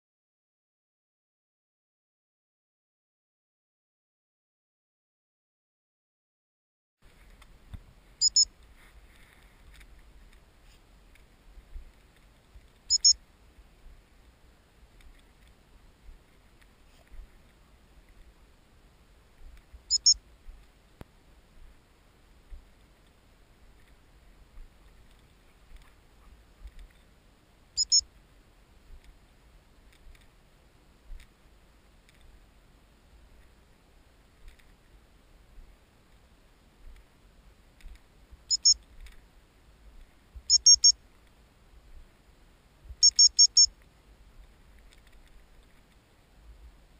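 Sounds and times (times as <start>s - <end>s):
faint scattered clicks: 7.0s - 18.4s, 19.5s - 21.2s, 22.4s - 27.2s, 27.8s - 28.3s, 28.9s - 29.2s, 29.8s - 30.4s, 31.1s - 32.4s, 34.2s - 35.0s, 36.9s - 39.3s, 39.9s - 41.4s, 42.9s - 46.8s
high-pitched whistle pips: 8.2s - 8.5s, 12.9s - 13.2s, 19.9s - 20.2s, 27.8s - 28.0s, 38.5s - 38.8s, 43.0s - 43.7s
high-pitched dog whistle pips: 27.8s - 28.0s, 43.0s - 43.7s.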